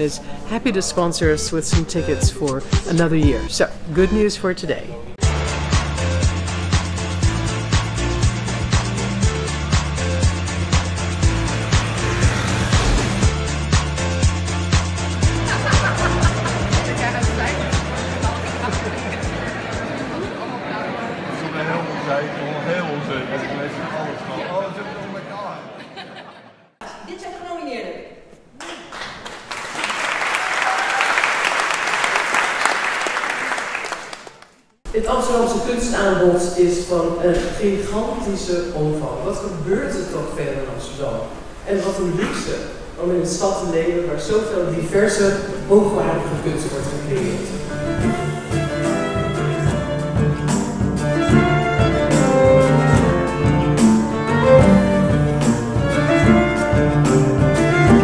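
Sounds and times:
drums keeping a beat: 0:12.7 - 0:20.0, 0:47.7 - 0:58.0
audience applauding: 0:15.2 - 0:20.4, 0:28.6 - 0:34.8
violin melody: 0:47.2 - 0:58.0
small band playing live: 0:47.3 - 0:58.0.

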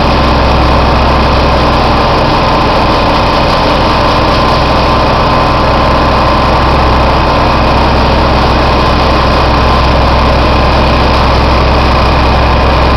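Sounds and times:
constant high whine: 0:00.0 - 0:12.9
dust collector machine hum: 0:00.0 - 0:12.9.

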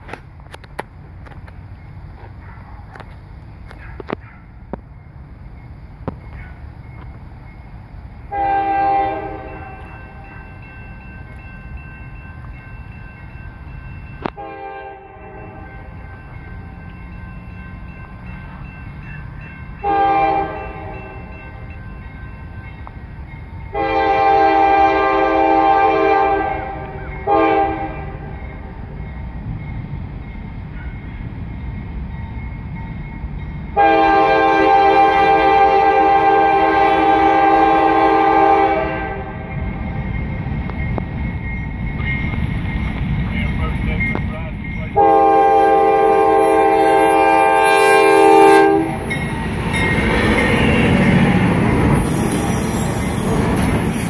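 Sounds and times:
locomotive air horn blasts: 0:08.3 - 0:09.9, 0:14.3 - 0:16.0, 0:19.8 - 0:21.2, 0:23.7 - 0:28.3, 0:33.8 - 0:39.5, 0:45.0 - 0:49.1.

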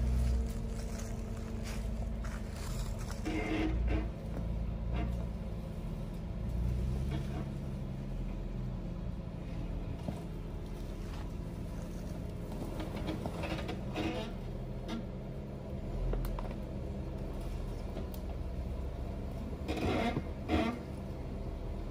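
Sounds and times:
car engine running at low revs: 0:00.0 - 0:21.9.

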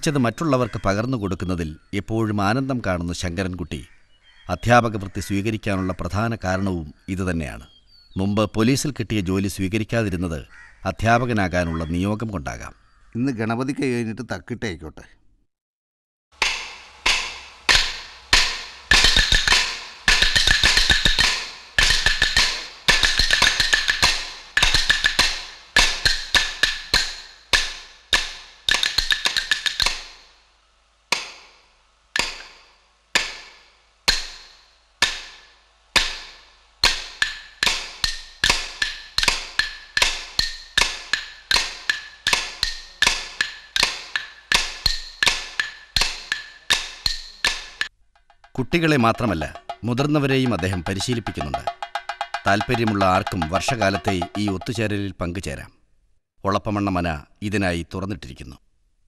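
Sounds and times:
wooden sticks clacking on stone: 0:16.4 - 0:30.3, 0:32.2 - 0:54.9.

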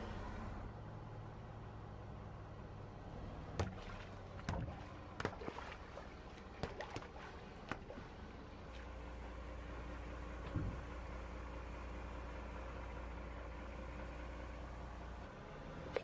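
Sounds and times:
car engine humming: 0:00.0 - 0:16.0
water splashing on asphalt: 0:03.5 - 0:08.8
water balloons bursting: 0:03.6 - 0:08.1.

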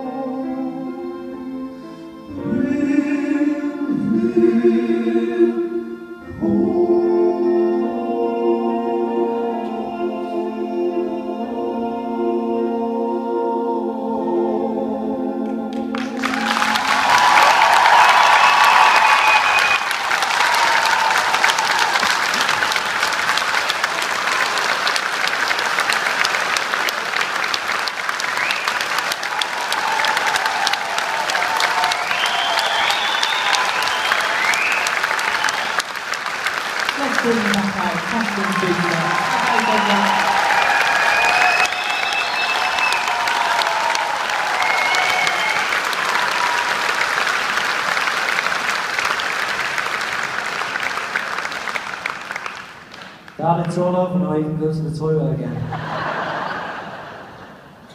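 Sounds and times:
audience applauding: 0:15.7 - 0:54.0, 0:55.7 - 0:57.6.

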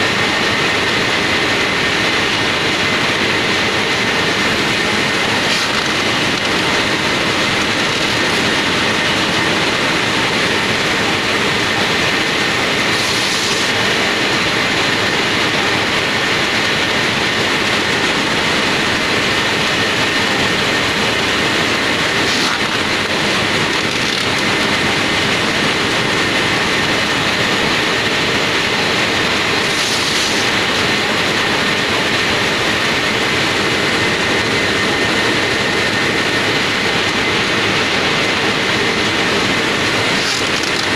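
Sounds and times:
machine clattering and whining: 0:00.0 - 0:40.9.

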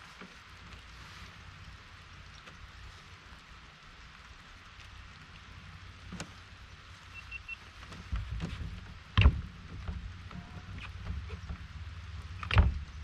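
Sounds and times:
light rain hissing: 0:00.0 - 0:13.0
loud thump: 0:09.2 - 0:09.5.

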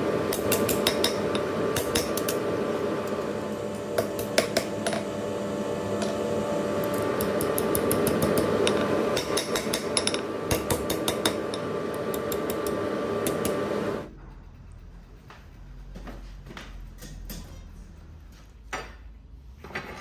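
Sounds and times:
steady hum: 0:00.0 - 0:18.6
hammer striking steel on anvil: 0:00.3 - 0:02.4, 0:07.2 - 0:11.7.

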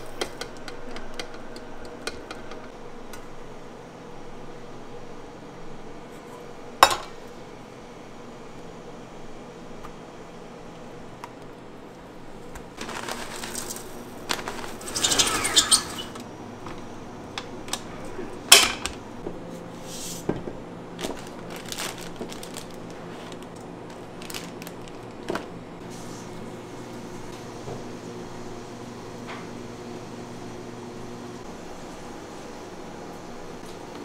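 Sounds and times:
crackly handling: 0:12.5 - 0:15.0, 0:21.0 - 0:25.6.

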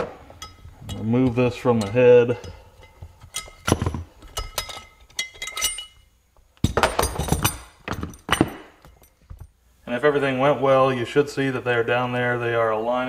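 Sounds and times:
metal tool clinking and clattering: 0:00.0 - 0:09.6.

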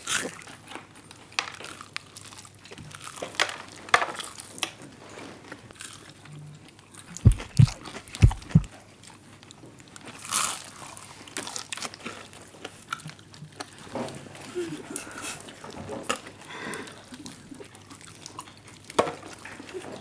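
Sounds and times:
crunchy bites and chewing: 0:01.6 - 0:03.4, 0:07.3 - 0:08.7
dull low thumps: 0:07.3 - 0:08.7.

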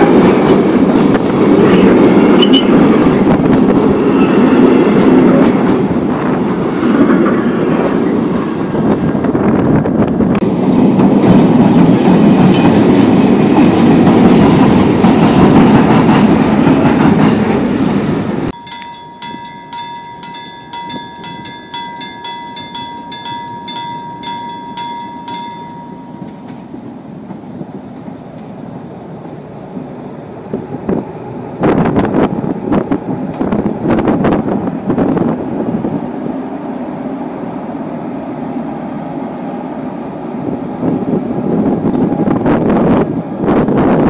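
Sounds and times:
train motors and wheels rumbling: 0:00.0 - 0:44.0
level-crossing bell ringing: 0:18.6 - 0:26.6.

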